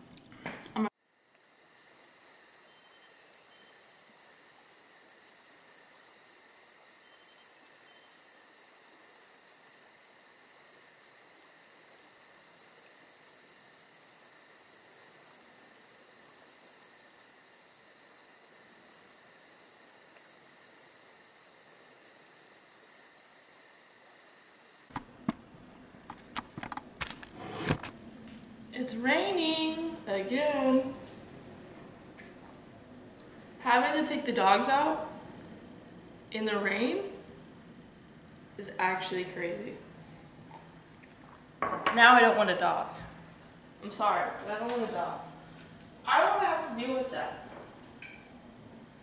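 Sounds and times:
faint pulsing high-pitched whine: 0.8s - 24.9s.

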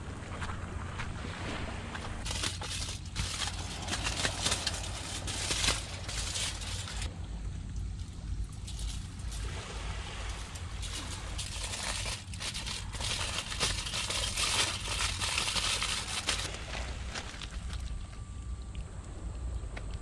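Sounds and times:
aluminium foil crinkling: 2.2s - 7.1s, 8.0s - 9.4s, 10.3s - 18.6s.

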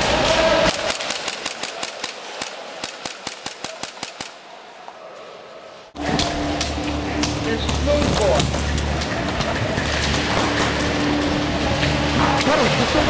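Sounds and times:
airsoft guns firing: 0.0s - 4.4s.

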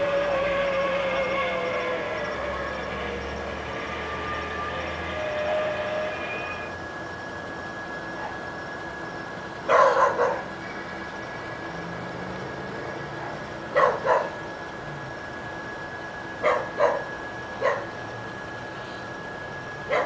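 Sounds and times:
dog barking: 9.7s - 10.5s, 13.7s - 14.4s, 16.4s - 17.9s.

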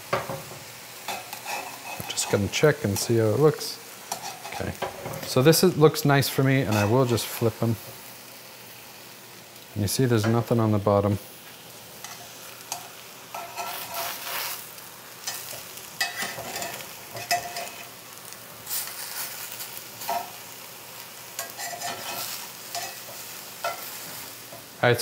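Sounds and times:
mushrooms sizzling in a pan: 0.0s - 25.0s
metal tongs scraping a skillet: 1.0s - 3.1s, 4.0s - 5.4s, 6.6s - 7.2s, 11.5s - 20.5s, 21.3s - 24.7s.

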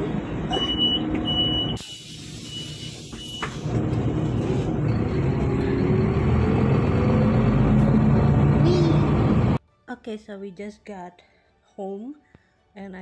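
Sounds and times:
bus engine rumbling: 0.0s - 9.6s
air brake hiss: 1.8s - 3.7s
rising engine whine: 3.6s - 9.6s.

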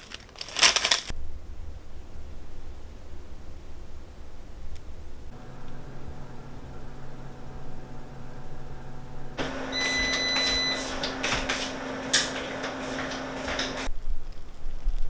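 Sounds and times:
rustling: 0.0s - 1.2s
mechanical hum: 0.5s - 14.2s
high whine: 1.2s - 13.9s
clicks: 4.7s - 13.9s.

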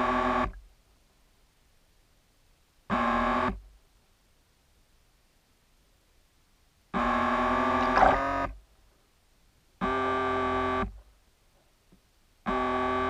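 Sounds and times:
electric propeller whine underwater: 7.0s - 8.6s.

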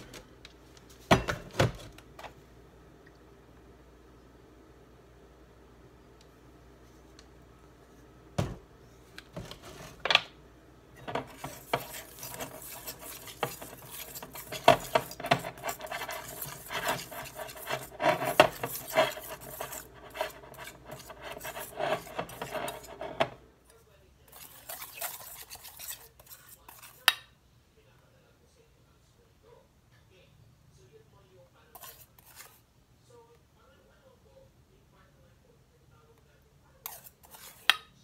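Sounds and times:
whisk scraping metal bowl: 11.0s - 23.4s, 24.3s - 27.2s, 31.8s - 32.6s, 36.8s - 37.9s.

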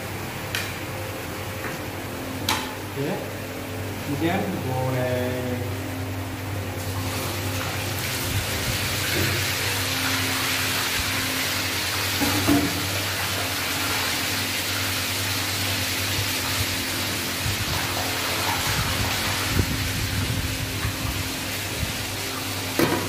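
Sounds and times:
fish deep-frying in oil: 5.7s - 23.0s.

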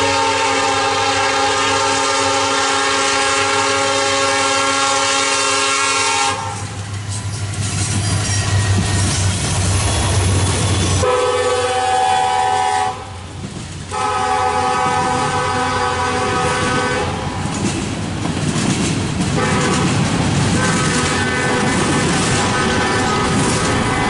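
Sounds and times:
locomotive air horn blasts: 0.0s - 6.7s, 11.0s - 13.2s, 13.9s - 17.2s, 19.4s - 20.0s, 20.6s - 24.0s
diesel locomotive engines: 0.0s - 24.0s
freight cars rumbling on rails: 0.0s - 24.0s.

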